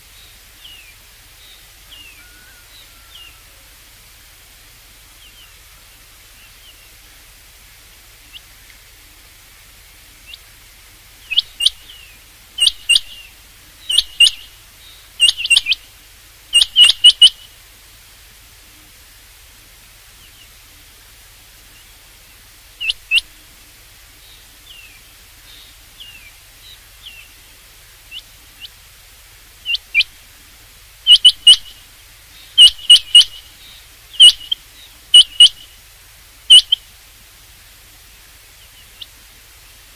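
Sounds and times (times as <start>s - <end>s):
quail calling: 1.9s - 3.7s, 11.3s - 15.8s, 16.5s - 17.5s, 22.8s - 23.4s, 29.6s - 30.2s, 31.1s - 31.8s, 32.5s - 35.7s, 36.5s - 36.8s.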